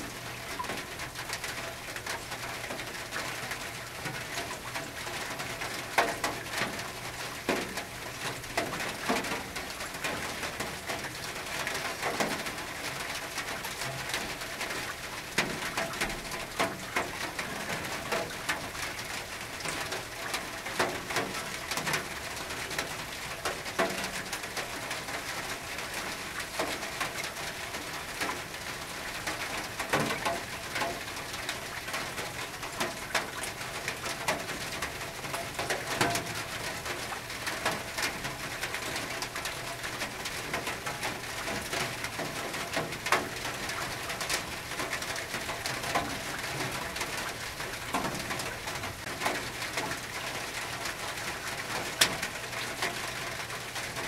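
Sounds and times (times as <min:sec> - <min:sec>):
steady hiss of rain: 0:00.0 - 0:54.0.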